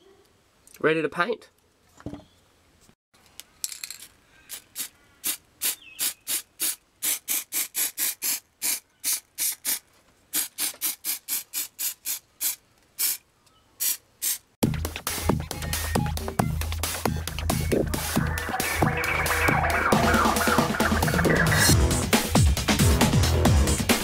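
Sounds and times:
spray paint can hissing: 4.5 - 13.2, 13.8 - 14.5.

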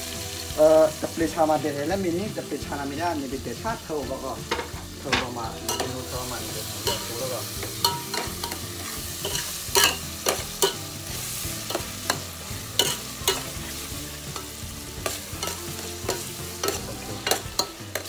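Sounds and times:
vegetables sizzling in a pot: 0.0 - 18.0
utensil scraping a pot: 5.7 - 18.0.

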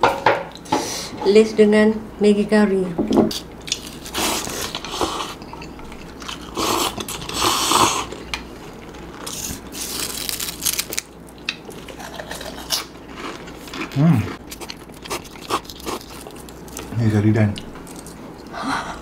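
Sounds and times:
potato chips crunching: 9.0 - 16.9
quiet chewing: 11.3 - 16.9.

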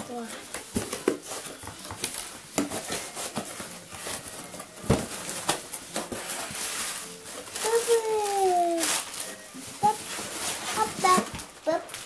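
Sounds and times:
cardboard scrapes and rustles: 1.2 - 11.4
packing tape pulled: 2.1 - 11.2.

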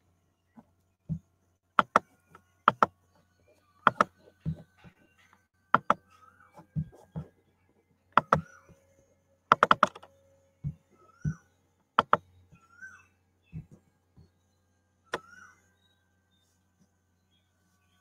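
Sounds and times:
mouse clicks: 1.8 - 2.0, 2.7 - 2.9, 3.8 - 4.1, 5.8 - 6.0, 8.2 - 8.6, 9.5 - 10.1, 12.0 - 12.2
keyboard clicks and taps: 1.8 - 2.1, 2.7 - 2.9, 3.8 - 4.7, 5.8 - 6.0, 8.2 - 8.5, 9.5 - 10.1, 12.0 - 12.2.

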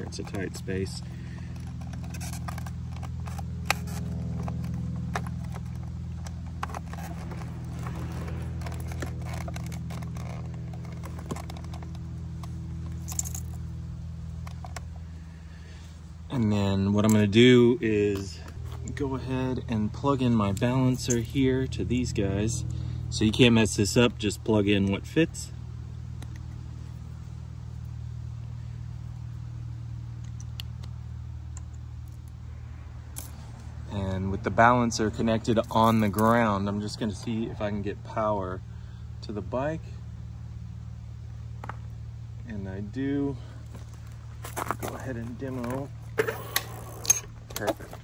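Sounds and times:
plastic parts and wiring scraping: 0.0 - 13.6, 14.4 - 14.9, 43.7 - 48.0
machine humming: 0.0 - 23.3
steady low hum: 0.0 - 48.0.

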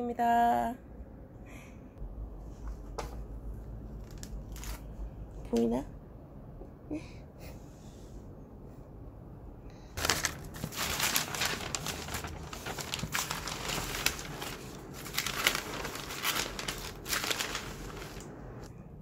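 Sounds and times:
paper rustling and crinkling: 4.0 - 4.9, 10.0 - 18.7.

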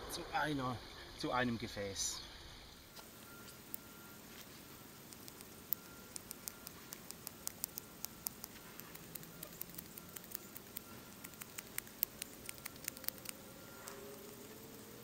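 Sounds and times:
knife shaving wood clicks: 5.0 - 14.5.

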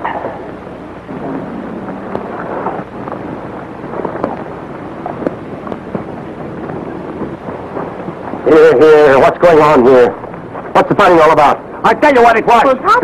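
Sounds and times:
old film soundtrack hiss: 0.0 - 13.0
irregular knocks and thuds: 1.1 - 9.4.

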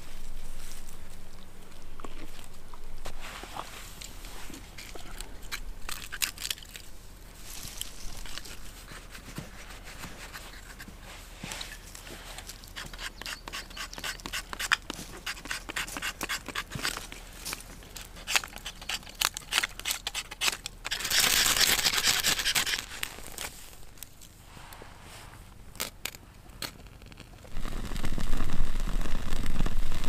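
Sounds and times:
knife shaving wooden stick: 7.5 - 24.8.

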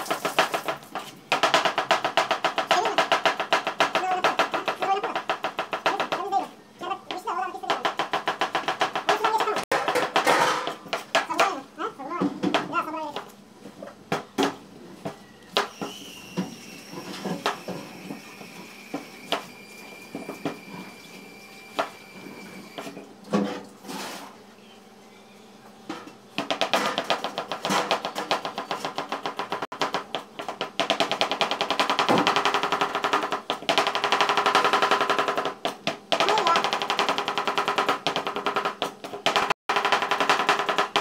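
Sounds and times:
knife chopping on cutting board: 7.7 - 11.5.

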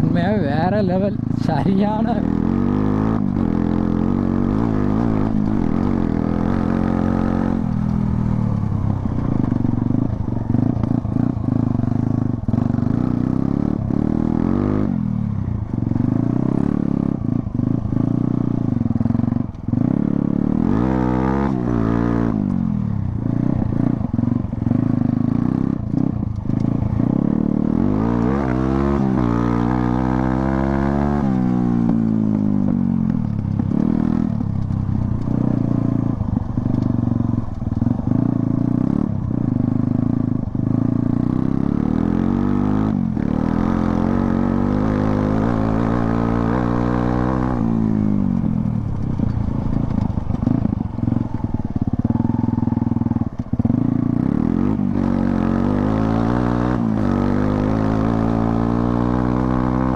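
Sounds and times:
dirt bike engine revving: 0.0 - 8.3, 40.7 - 59.9.

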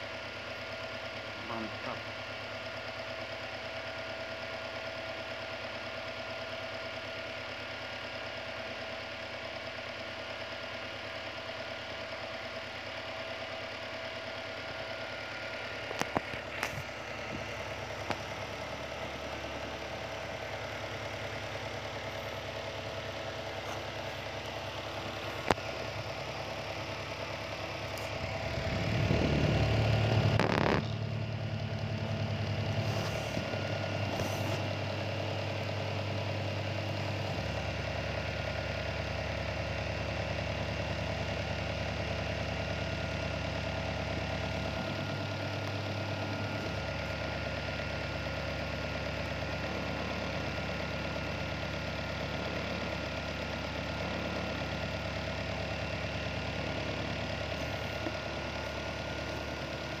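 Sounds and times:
electric desk fan running: 15.9 - 37.6.

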